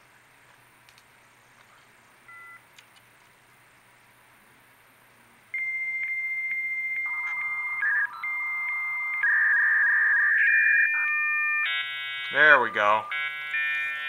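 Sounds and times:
hissing modem data tone: 0:05.5 - 0:14.0
modem answer tone: 0:05.6 - 0:14.0
modem warbling tones: 0:05.6 - 0:14.0.

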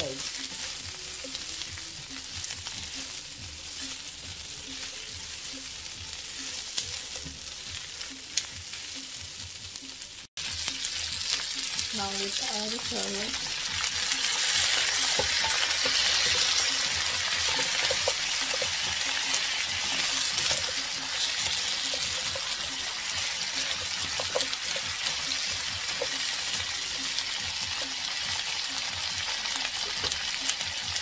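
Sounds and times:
food sizzling in a frying pan: 0:00.0 - 0:31.0
spoon knocking and scraping pan: 0:14.5 - 0:26.4.

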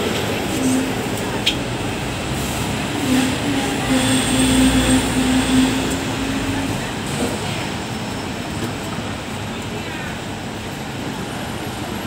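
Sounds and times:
electric tram rumbling: 0:00.0 - 0:12.0.

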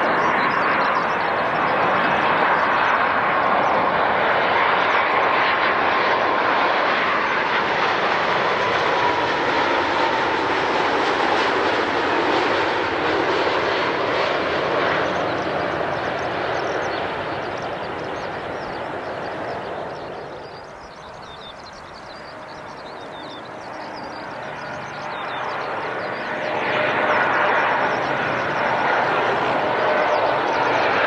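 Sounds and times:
jet airliner engines rushing: 0:00.0 - 0:31.0.

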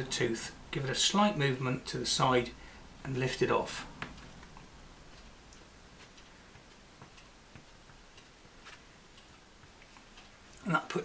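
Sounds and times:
pastel stick tapping paper: 0:06.0 - 0:10.0.

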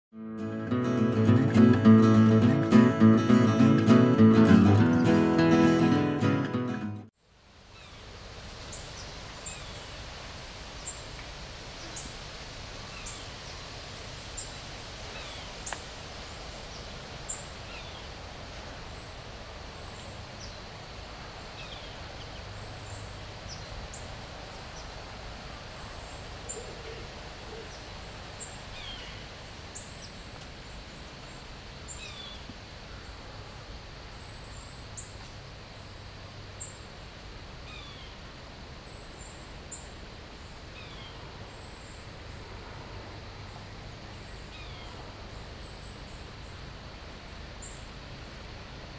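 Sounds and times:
steady background hiss: 0:00.2 - 0:48.9
songbirds calling: 0:07.7 - 0:10.0, 0:11.8 - 0:12.2, 0:12.8 - 0:18.2, 0:18.9 - 0:20.8, 0:21.4 - 0:25.0, 0:25.7 - 0:33.3, 0:34.1 - 0:35.3, 0:37.6 - 0:38.2, 0:38.9 - 0:42.6, 0:43.3 - 0:46.7.

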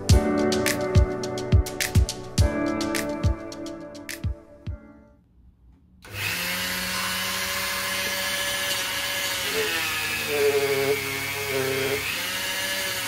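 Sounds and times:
rotary tool running: 0:06.1 - 0:13.0.

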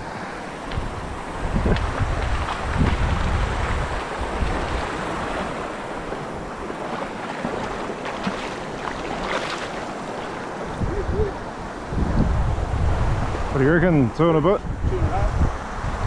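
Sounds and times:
stream rushing over stones: 0:00.0 - 0:13.7
fish splashing at surface: 0:06.7 - 0:10.4.

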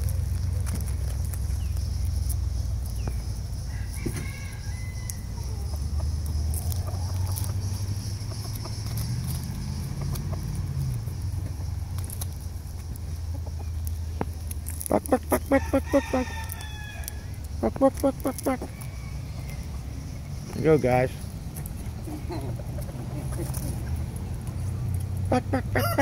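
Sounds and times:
steady low rumble: 0:00.0 - 0:03.7
chickens clucking: 0:00.6 - 0:26.0.

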